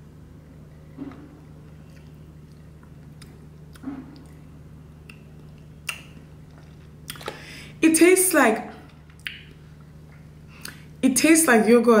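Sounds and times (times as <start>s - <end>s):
steady low hum: 0.0s - 12.0s
lip smacks and mouth clicks: 5.0s - 7.4s, 9.1s - 10.9s.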